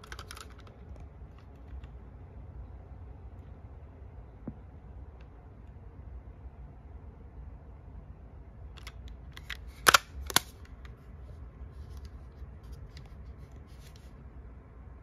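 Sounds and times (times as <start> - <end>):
small plastic clicks: 0.0 - 2.0
sharp plastic snaps: 8.7 - 11.0.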